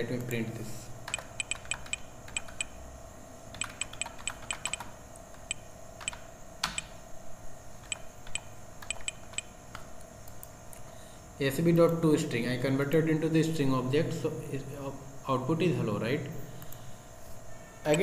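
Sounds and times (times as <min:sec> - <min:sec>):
computer keyboard typing: 0:01.1 - 0:02.8, 0:03.5 - 0:06.9, 0:07.8 - 0:10.6.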